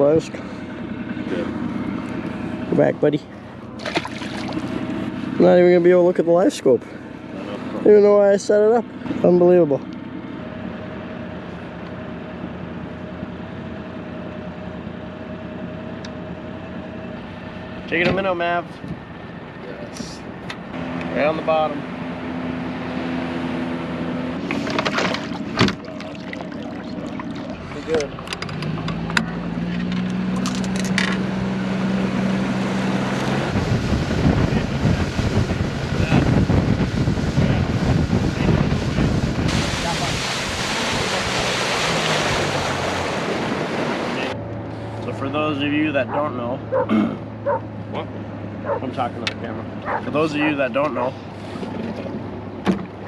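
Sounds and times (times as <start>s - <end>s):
boat motor running: 0.0s - 53.0s
wind buffeting microphone: 33.4s - 41.7s.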